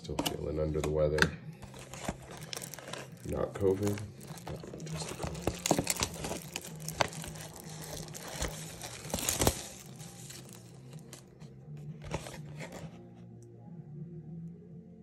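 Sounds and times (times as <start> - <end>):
soft background music: 0.0 - 15.0
plastic wrapping crinkling and tearing: 1.6 - 11.3.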